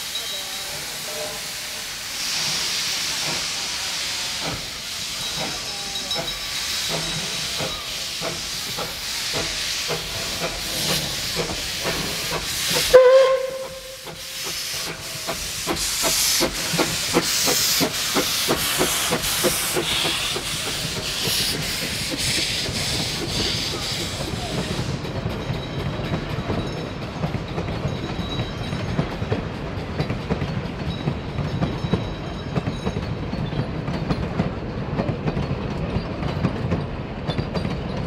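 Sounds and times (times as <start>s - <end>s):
steam venting hiss: 0.0s - 25.2s
train wheels clicking: 0.0s - 38.0s
steam whistle toot: 12.8s - 14.4s.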